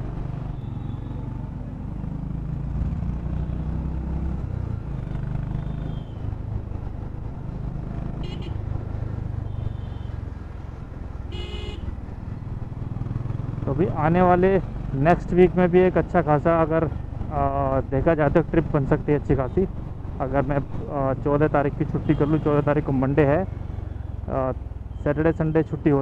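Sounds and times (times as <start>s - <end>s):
road and wind noise: 0.0s - 26.0s
vehicle horn honking: 8.2s - 8.6s, 11.3s - 11.9s, 22.0s - 22.5s.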